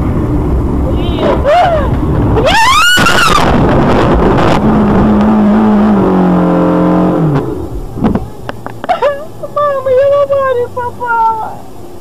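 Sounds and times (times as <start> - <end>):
pitched shriek: 1.1 - 4.6.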